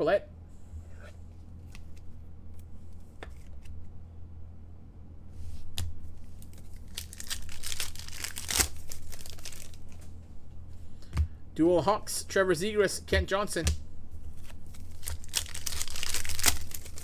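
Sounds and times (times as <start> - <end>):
card pack wrapper tearing: 6.4 - 9.9, 14.7 - 17.0
wrapper crinkling: 6.4 - 10.0, 14.3 - 17.0
cards and plastic sleeves clicking: 14.4 - 17.0.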